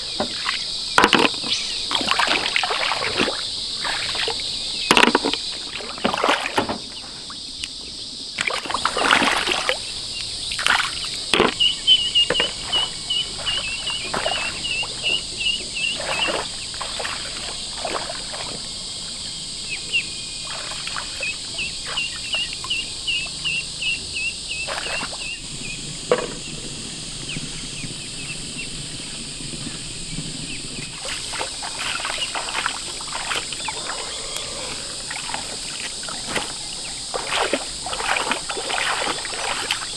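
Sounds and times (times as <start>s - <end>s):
feet wading through water: 0.0s - 7.0s, 8.4s - 23.6s, 24.5s - 25.4s, 30.4s - 39.9s
high insect drone: 0.0s - 39.9s.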